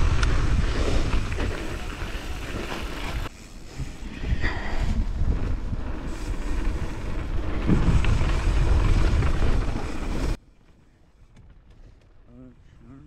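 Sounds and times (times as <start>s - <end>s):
wind buffeting microphone: 0.0s - 10.4s
bike tyres rumbling on dirt: 0.0s - 13.0s.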